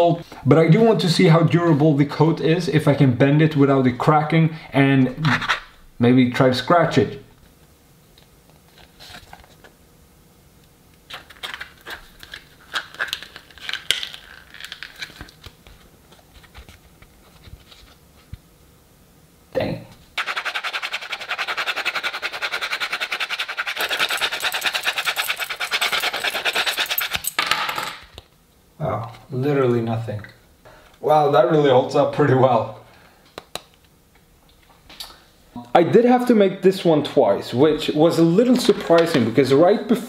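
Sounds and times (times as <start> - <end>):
hard scratching on phone case: 20.2 - 27.3.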